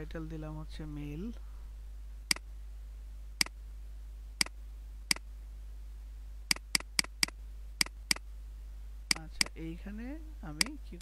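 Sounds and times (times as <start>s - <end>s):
steady low hum: 0.0s - 11.0s
mouse buttons clicking: 6.5s - 8.2s, 9.1s - 9.6s.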